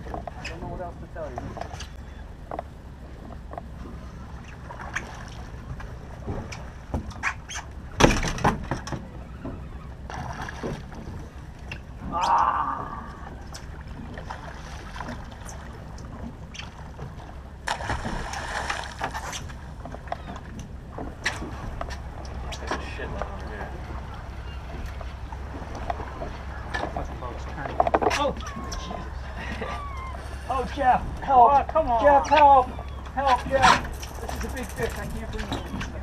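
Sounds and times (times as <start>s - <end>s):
boat engine hum: 0.0s - 36.0s
water sloshing against hull: 0.0s - 36.0s
fishing rods clicking and knocking: 33.7s - 36.0s.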